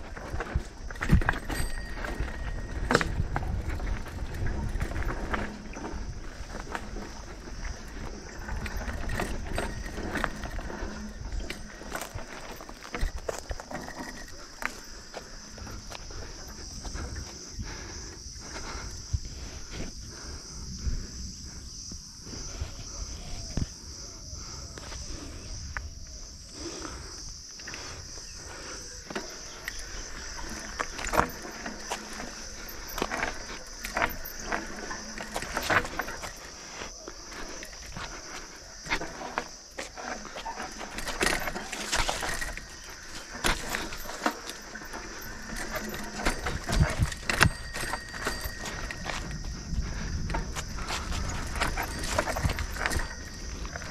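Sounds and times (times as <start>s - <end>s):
insect chorus: 0.0s - 53.9s
mountain bike rattling downhill: 0.0s - 53.9s.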